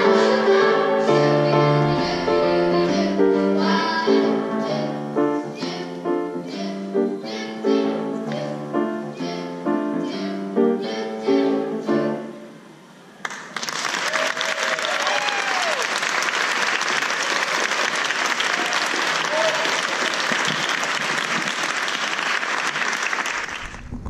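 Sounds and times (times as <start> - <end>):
piano accompaniment: 0.0 - 12.6
children's choir singing: 0.0 - 12.7
audience applause: 13.2 - 23.9.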